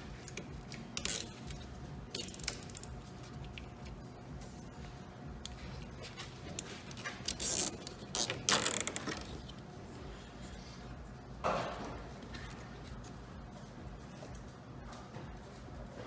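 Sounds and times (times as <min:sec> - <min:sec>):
cable ties ratcheting zips: 0:00.2 - 0:03.7, 0:06.9 - 0:09.5.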